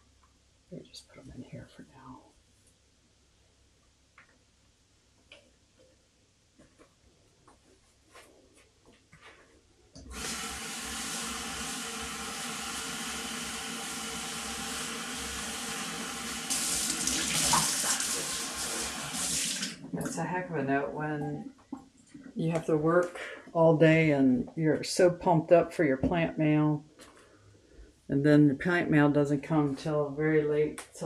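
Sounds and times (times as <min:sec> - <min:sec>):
faucet water running into bowl: 0:10.1 - 0:19.8.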